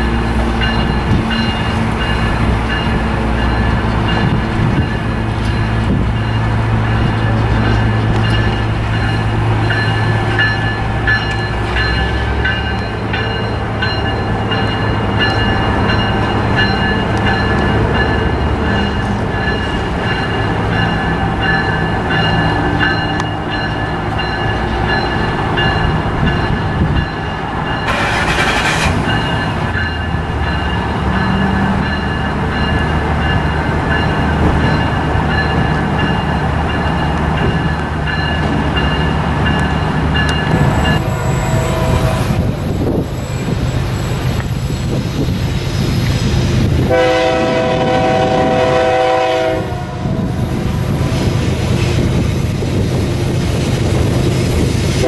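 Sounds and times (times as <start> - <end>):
locomotive engine drone: 0.0 - 55.0
short burst of hiss: 27.9 - 29.1
high ringing tones: 29.1 - 45.3.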